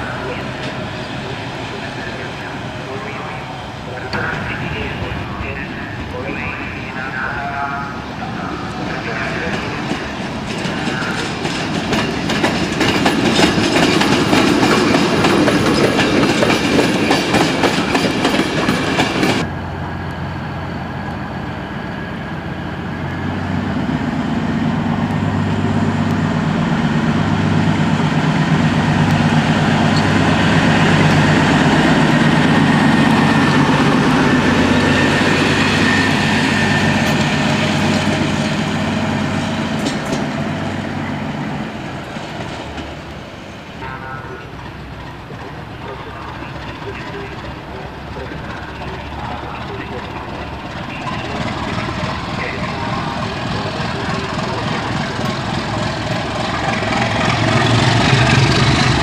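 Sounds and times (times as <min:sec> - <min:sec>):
diesel railcar engine droning: 0:00.0 - 0:59.0
train coaches clattering over rail joints: 0:06.2 - 0:19.5, 0:26.9 - 0:41.2, 0:43.8 - 0:59.0.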